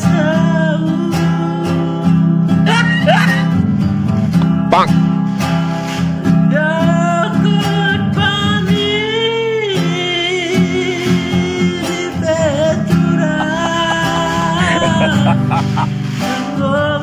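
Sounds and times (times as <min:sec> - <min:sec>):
strummed acoustic guitar: 0:00.0 - 0:17.0
man singing: 0:06.5 - 0:15.9.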